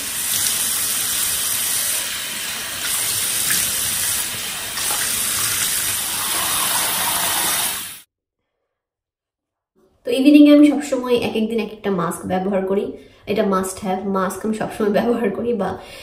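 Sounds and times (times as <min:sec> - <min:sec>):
tap water running into sink: 0:00.0 - 0:08.0.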